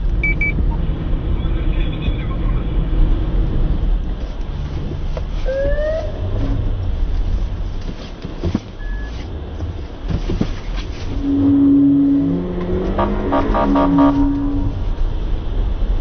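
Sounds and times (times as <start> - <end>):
car road and engine rumble: 0.0 - 16.0
short rising whine: 11.2 - 15.0.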